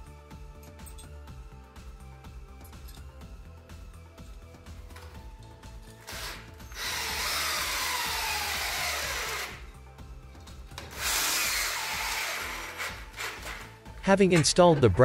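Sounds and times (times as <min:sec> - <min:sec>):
cordless drill whining: 0:06.0 - 0:09.7, 0:10.8 - 0:13.8.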